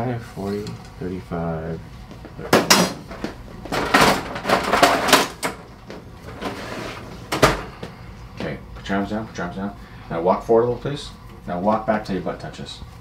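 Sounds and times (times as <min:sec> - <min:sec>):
rustling and scraping: 0:02.0 - 0:07.9.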